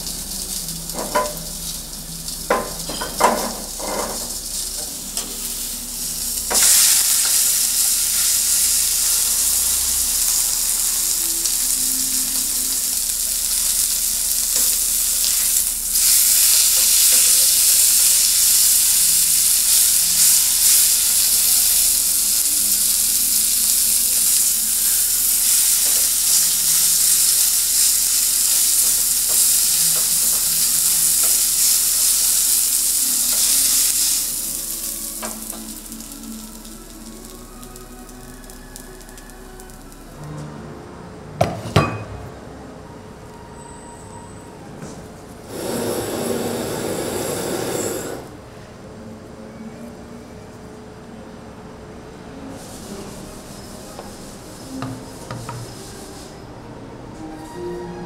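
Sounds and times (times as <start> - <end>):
steak sizzling: 0.0 - 40.3, 45.5 - 48.3.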